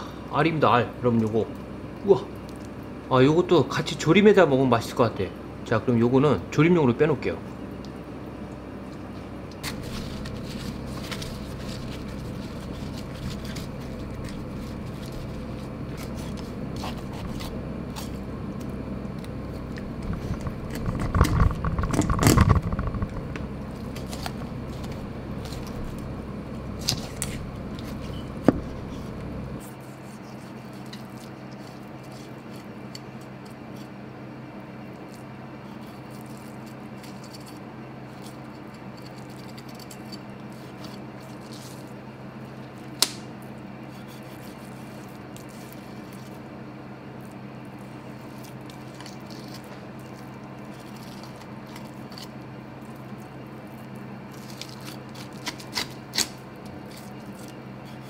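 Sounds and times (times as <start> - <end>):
low background hum: 0.0 - 58.0
knife scraping along fish bones: 9.6 - 21.7, 26.7 - 34.0, 35.0 - 42.9, 43.7 - 46.6, 47.2 - 58.0.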